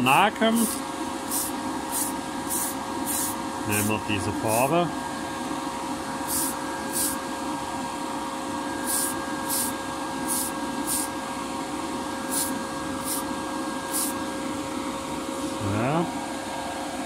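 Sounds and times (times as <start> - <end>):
extraction fan humming: 0.0 - 17.0
aerosol spray can hissing: 1.3 - 3.4, 6.3 - 7.2, 8.8 - 11.1, 12.3 - 13.3, 13.9 - 14.2.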